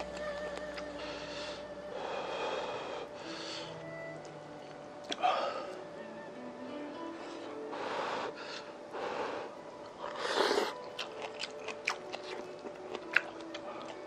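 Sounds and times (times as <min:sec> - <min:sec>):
chewing: 0:09.8 - 0:14.0.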